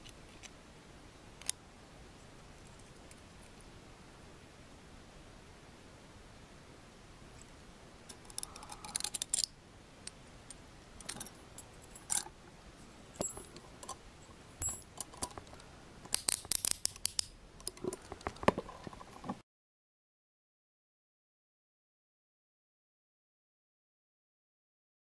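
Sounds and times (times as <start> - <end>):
handcuff metal clicks: 8.1 - 9.5, 11.0 - 12.3, 13.2 - 14.0, 14.6 - 18.1.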